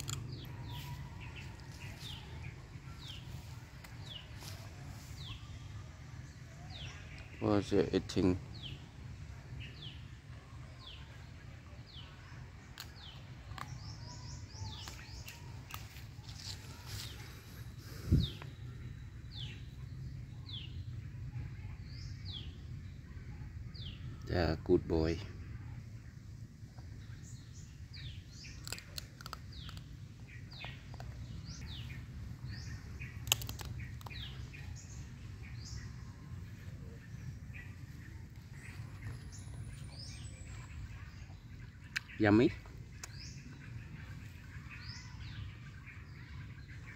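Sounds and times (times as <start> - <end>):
bird chirping: 0.0 - 46.9
sharp clicks: 33.2 - 34.2.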